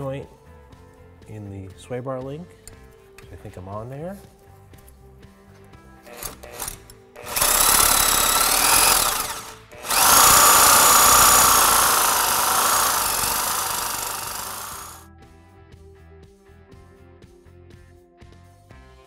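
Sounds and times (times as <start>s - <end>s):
reciprocating saw cutting steel: 6.1s - 15.0s.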